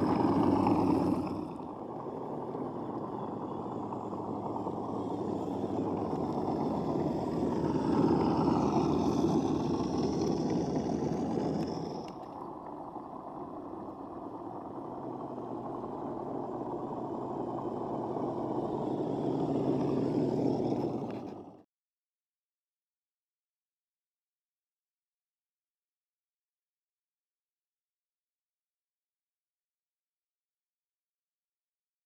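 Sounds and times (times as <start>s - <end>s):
toy car motor whine: 0.0s - 12.4s, 15.0s - 21.6s.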